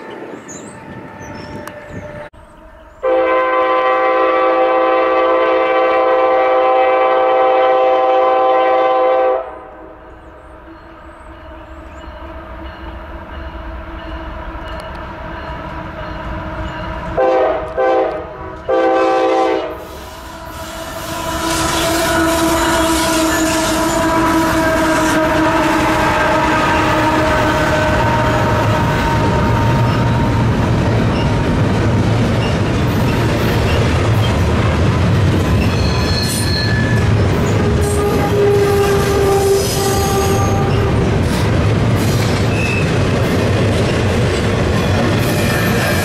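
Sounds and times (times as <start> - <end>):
train wheels on rail: 0.0 - 9.4, 10.1 - 46.0
locomotive air horn blasts: 3.0 - 9.9, 17.2 - 30.6, 37.4 - 41.1.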